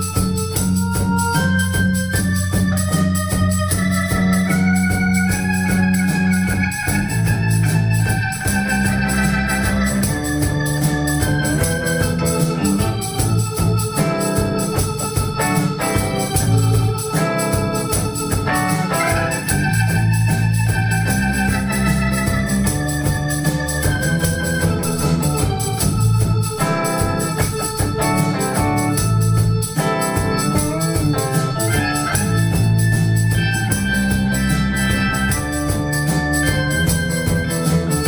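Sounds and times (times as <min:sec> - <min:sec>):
drums beat: 0:00.0 - 0:38.0
electric guitar: 0:00.0 - 0:38.0
sustained organ-like tones: 0:00.0 - 0:38.0.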